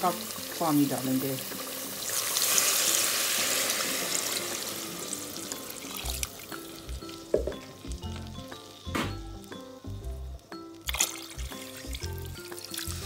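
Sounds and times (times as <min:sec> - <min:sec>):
water pouring into pot: 0:00.0 - 0:08.5, 0:10.8 - 0:13.0
background music with low beat: 0:05.4 - 0:13.0.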